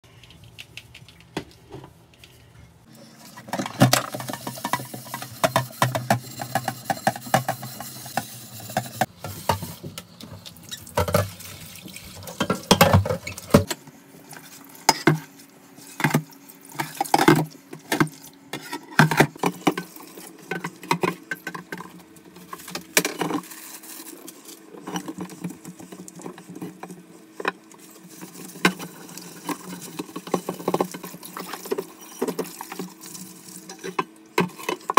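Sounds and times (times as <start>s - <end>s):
tap water running: 3.2s - 13.7s, 27.7s - 34.9s.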